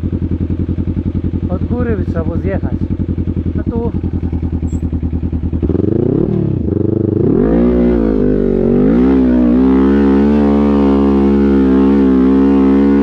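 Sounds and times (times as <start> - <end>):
quad engine idling and revving: 0.0 - 13.0.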